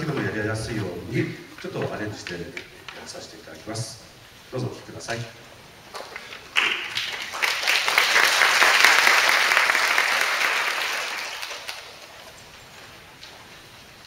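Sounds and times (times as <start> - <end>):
audience applauding: 6.0 - 12.2.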